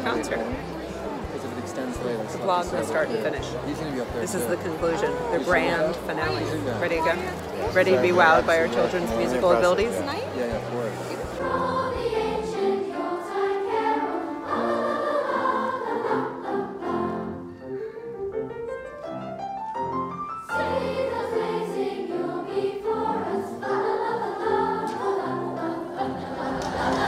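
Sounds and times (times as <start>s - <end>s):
children's choir singing: 10.6s - 18.0s, 20.4s - 27.0s
grand piano: 10.9s - 27.0s.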